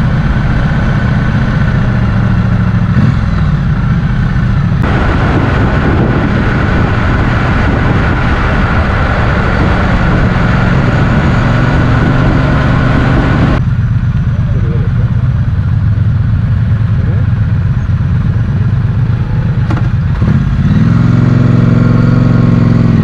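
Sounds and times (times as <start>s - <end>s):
motorcycle engine running: 0.0s - 23.0s
broad rushing noise: 4.8s - 13.6s.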